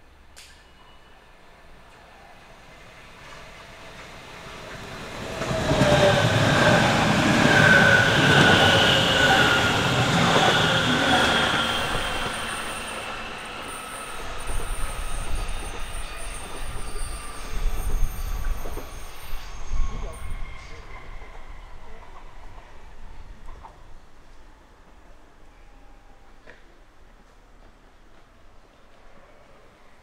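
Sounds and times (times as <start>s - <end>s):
electric train running past: 0.1s - 30.0s
high-pitched wheel squeal: 5.2s - 21.9s.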